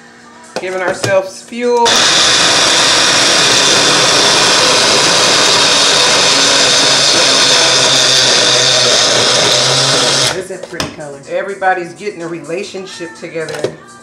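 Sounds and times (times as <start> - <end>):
blender running: 1.8 - 10.5.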